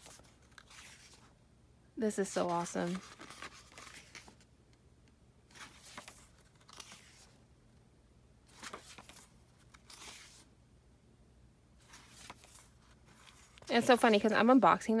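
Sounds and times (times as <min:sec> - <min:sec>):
pages turning: 0:00.0 - 0:01.3, 0:02.2 - 0:04.5, 0:05.5 - 0:07.4, 0:08.5 - 0:10.5, 0:11.8 - 0:14.3.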